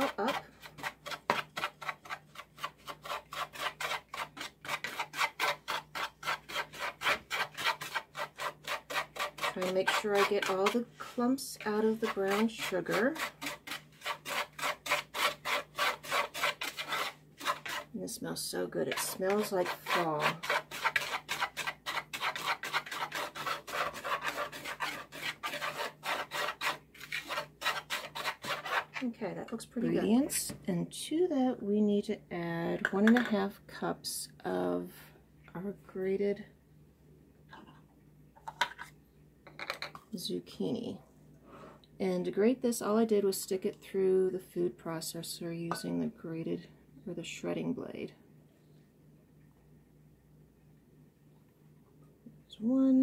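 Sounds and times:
whisk scratching in dry mix: 0:00.0 - 0:18.0, 0:18.8 - 0:29.1.

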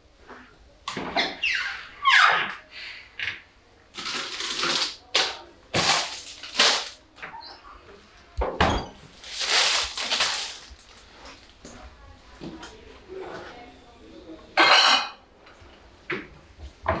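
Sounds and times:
kitchen rustles and clatters: 0:02.4 - 0:13.7.

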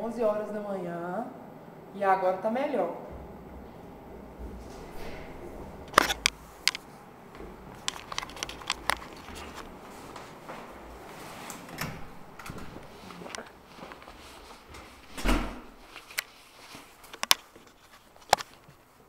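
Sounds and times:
camera handling rubbing and rustling: 0:05.9 - 0:06.9, 0:07.8 - 0:10.4, 0:15.9 - 0:18.9.

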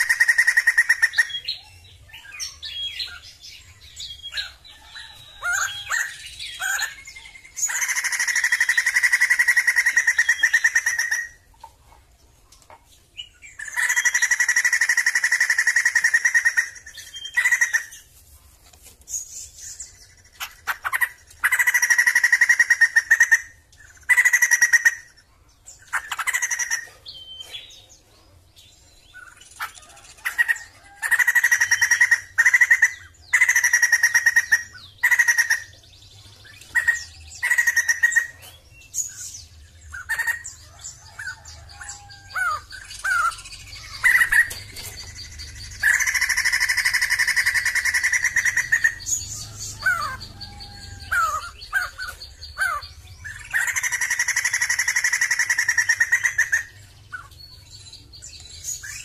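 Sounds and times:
bird calling: 0:00.0 - 0:12.0, 0:12.6 - 0:18.1, 0:19.6 - 0:27.9, 0:29.1 - 0:59.0.

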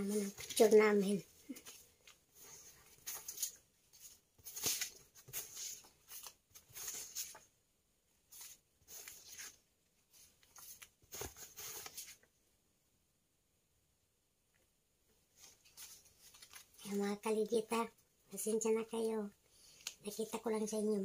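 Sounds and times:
plastic sheet rustling: 0:00.0 - 0:07.5.

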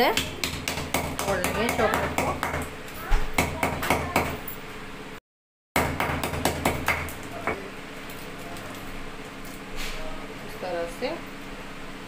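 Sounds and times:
rolling pin knocking on chocolate: 0:00.1 - 0:02.7.

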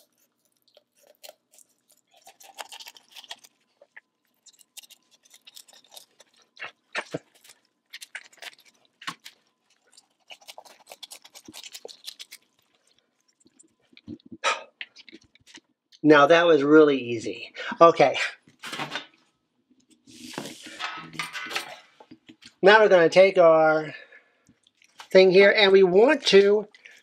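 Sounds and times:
shears crunching through bones: 0:00.0 - 0:14.2.

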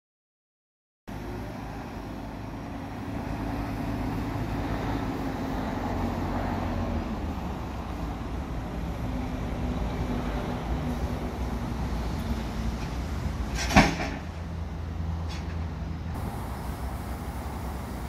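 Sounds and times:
diesel engine running: 0:07.0 - 0:18.0.

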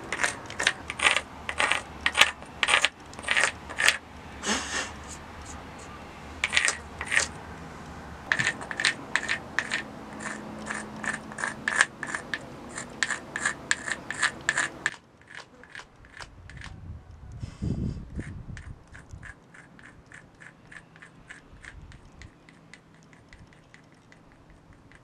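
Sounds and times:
hard point scraping rock: 0:00.0 - 0:07.4, 0:08.2 - 0:16.8, 0:17.9 - 0:25.0.

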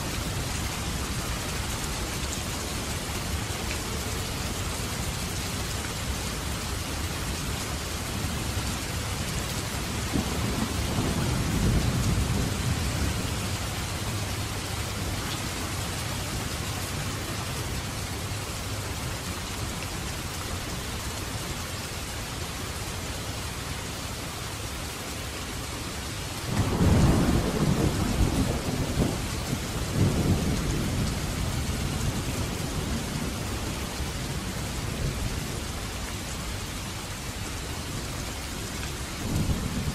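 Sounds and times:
steady rain: 0:00.0 - 0:39.9
thunder rumbling: 0:09.9 - 0:15.2, 0:26.5 - 0:35.6.

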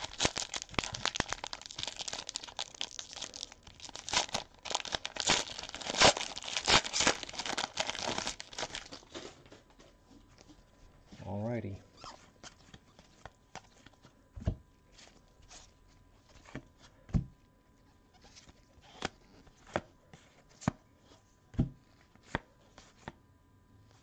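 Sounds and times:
card and wrapper rustling: 0:00.0 - 0:09.7.

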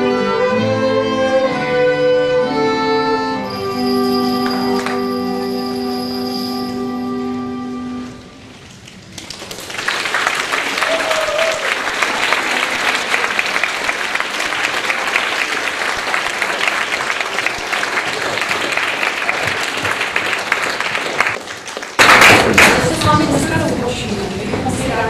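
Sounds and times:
audience applauding: 0:04.3 - 0:05.4, 0:08.9 - 0:23.6.

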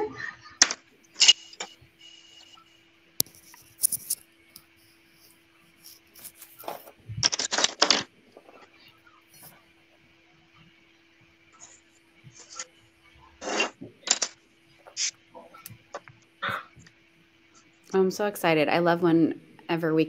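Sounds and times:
faint steady electrical tone: 0:00.0 - 0:20.0
rustling and handling: 0:03.2 - 0:10.7
pens clicking and tapping on desks: 0:05.8 - 0:08.7, 0:13.8 - 0:16.2.

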